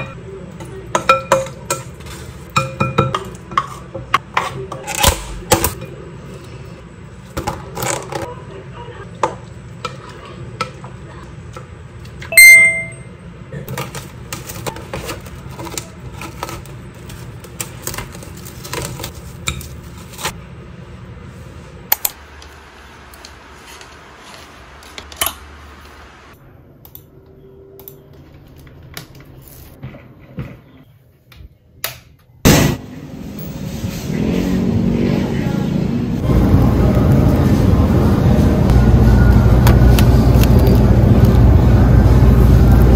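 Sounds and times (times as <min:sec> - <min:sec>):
outdoor traffic noise: 0:00.0 - 0:31.1, 0:31.8 - 0:42.9.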